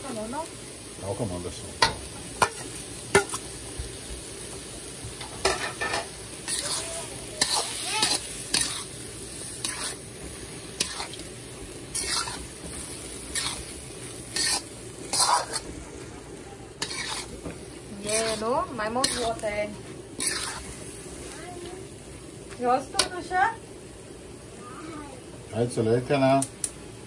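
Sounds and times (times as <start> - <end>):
steady sizzle: 0.0 - 27.0
metal spatula scraping a wok: 1.8 - 3.5, 5.2 - 11.3, 11.9 - 15.8, 16.7 - 21.0.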